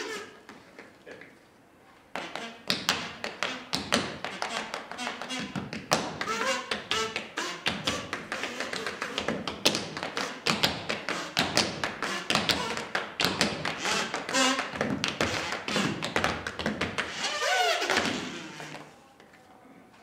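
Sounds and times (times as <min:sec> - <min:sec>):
tap shoes on wooden floor: 0:02.1 - 0:18.9.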